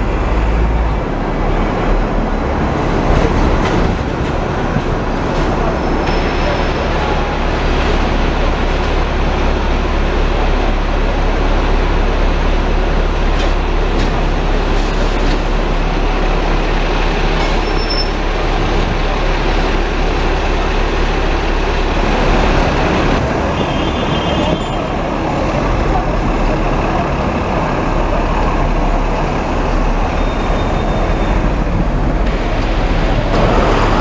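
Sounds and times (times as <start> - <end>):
street traffic: 0.0 - 34.0
tram rumbling on rails: 0.0 - 34.0.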